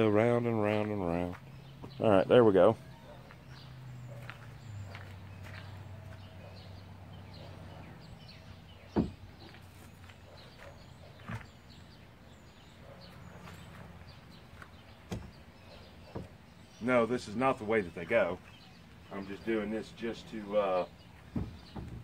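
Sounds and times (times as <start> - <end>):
wooden boards knocking on deck: 9.0 - 9.2, 21.3 - 22.0.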